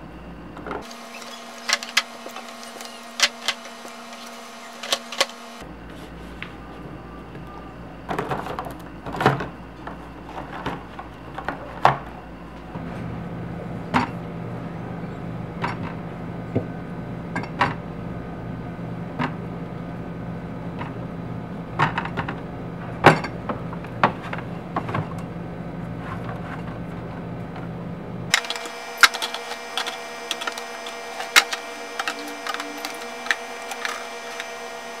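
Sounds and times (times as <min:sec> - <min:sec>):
refrigerator humming: 0:00.0 - 0:35.0.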